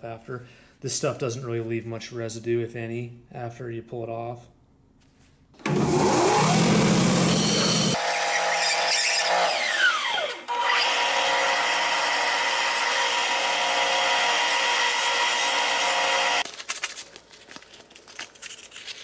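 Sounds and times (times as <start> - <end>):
belt sander whining: 5.6 - 16.4.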